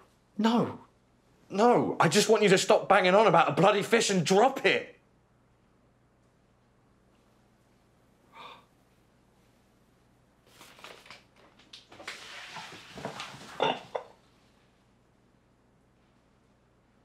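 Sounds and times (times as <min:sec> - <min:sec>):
short breath: 0:08.3 - 0:08.7
rustling and clicking handling noises: 0:10.5 - 0:14.0.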